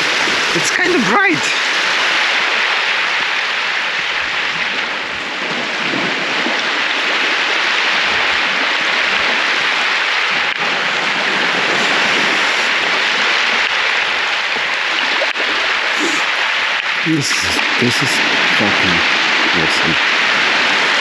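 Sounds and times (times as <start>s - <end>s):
rushing water: 0.0s - 21.0s.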